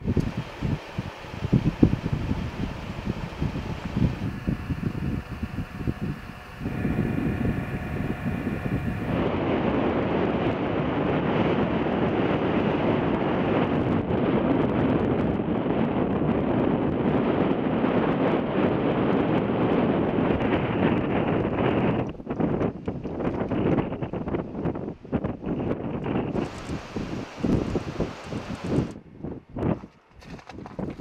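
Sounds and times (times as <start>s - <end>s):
steady hum with even tones: 0.0s - 14.4s, 26.1s - 29.0s
wind blowing on microphone: 0.0s - 31.0s.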